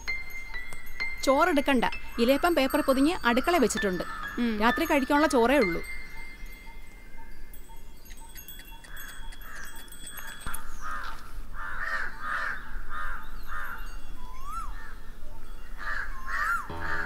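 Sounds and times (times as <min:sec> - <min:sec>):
faint chime-like ringing tones: 0:00.0 - 0:11.5, 0:13.3 - 0:17.0
crows cawing: 0:04.0 - 0:04.4, 0:10.8 - 0:13.8, 0:15.8 - 0:17.0.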